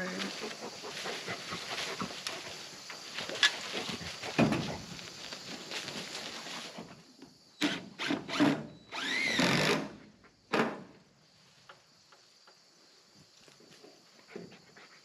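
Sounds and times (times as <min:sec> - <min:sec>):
cordless drill driving screws: 0:07.7 - 0:09.8.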